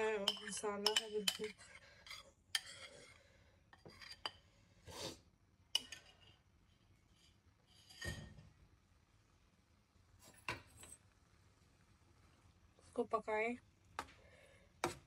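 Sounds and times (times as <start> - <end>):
metal spoon clinking on pan: 0.0 - 2.9, 5.7 - 6.3.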